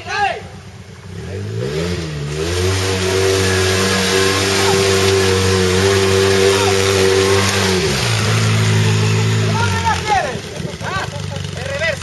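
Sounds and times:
engine at high revs: 0.7 - 12.0
tyres and flung mud rushing: 1.8 - 12.0.

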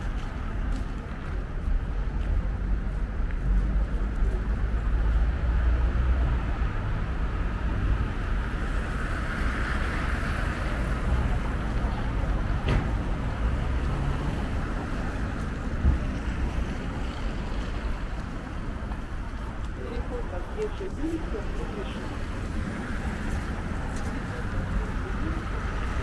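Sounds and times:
city street traffic: 0.0 - 26.0
short thump: 12.6 - 13.0.

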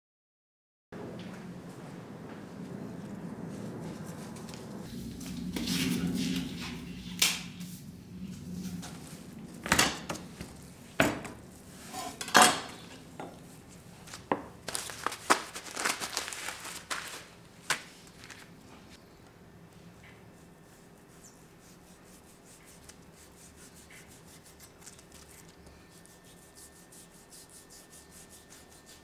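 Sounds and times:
low hum: 1.0 - 11.8
metal utensils clanking on cookware: 11.9 - 13.4.

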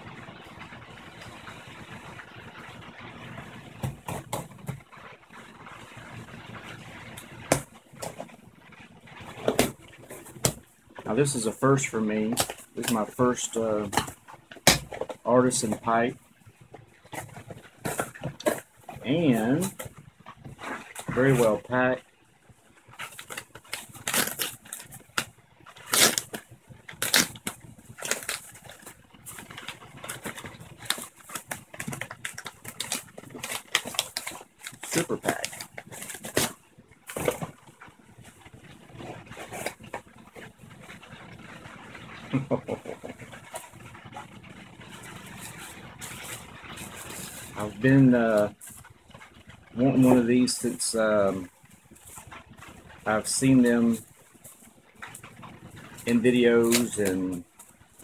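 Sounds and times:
steady low hum: 0.0 - 58.0
padded envelope crinkling and tearing: 0.6 - 58.0
packaging knocks and clicks: 16.6 - 21.7, 22.9 - 41.4.

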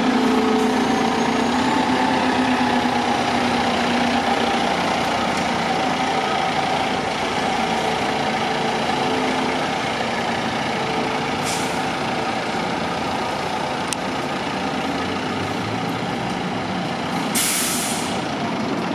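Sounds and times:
diesel engine running: 0.0 - 18.9
air brake hiss: 11.4 - 11.8, 17.3 - 18.2
short air hiss: 17.4 - 18.2.

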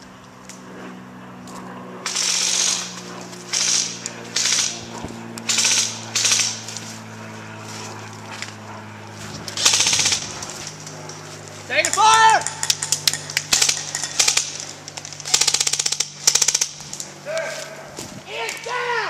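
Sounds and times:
airsoft rifle automatic bursts: 2.1 - 2.9, 3.5 - 4.8, 5.5 - 6.7, 9.6 - 10.4, 11.9 - 16.8.

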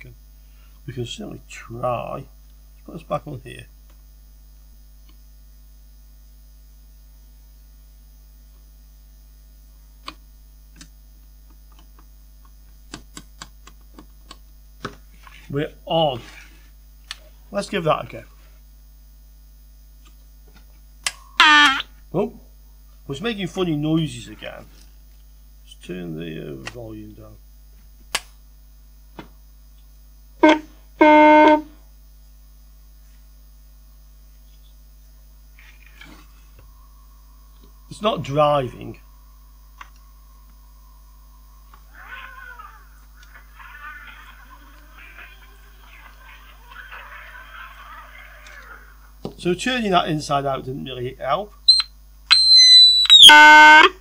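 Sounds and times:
buzzing tones from speaker: 0.0 - 54.0
low mains hum: 0.0 - 54.0.

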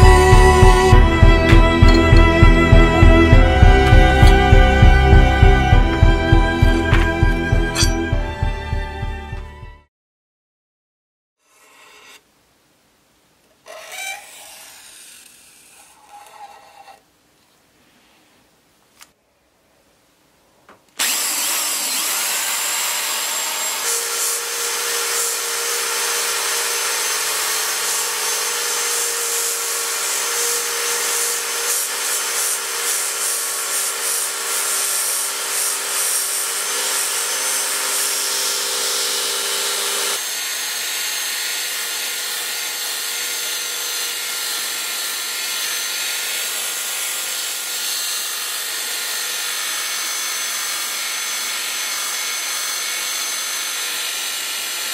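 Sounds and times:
belt file grinding steel: 6.6 - 8.3, 21.0 - 54.9.

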